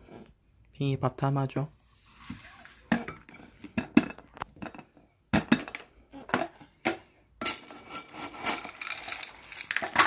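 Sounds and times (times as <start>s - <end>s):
dry kibble rattling: 7.6s - 10.0s.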